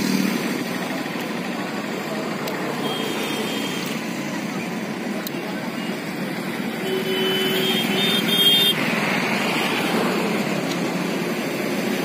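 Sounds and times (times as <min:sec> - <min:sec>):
traffic noise: 0:00.0 - 0:12.0
car horn blasts: 0:06.8 - 0:08.8.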